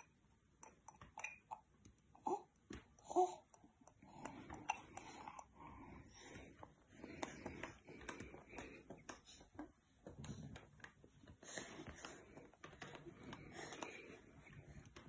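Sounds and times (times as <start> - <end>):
baby sipping: 4.0 - 5.6.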